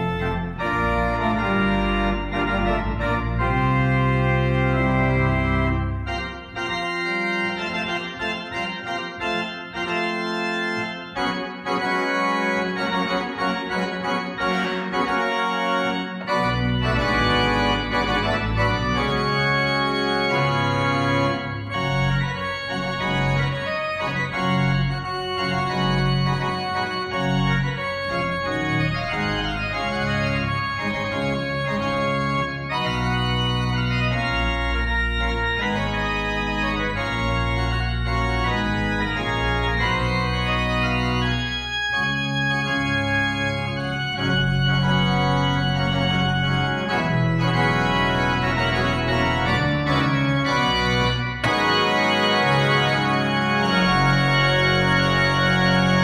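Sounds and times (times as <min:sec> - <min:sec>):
pipe organ playing: 0:00.0 - 0:56.0.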